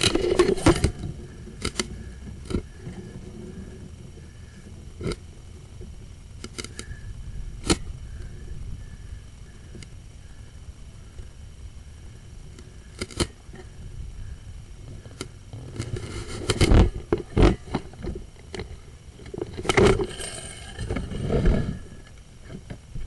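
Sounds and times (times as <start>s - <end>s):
camera cable scraping in pipe: 19.4s - 22.0s.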